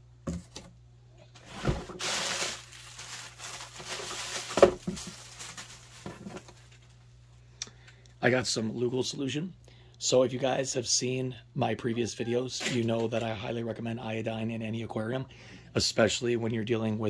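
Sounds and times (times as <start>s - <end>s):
plastic packing material rustling: 1.4s - 7.0s.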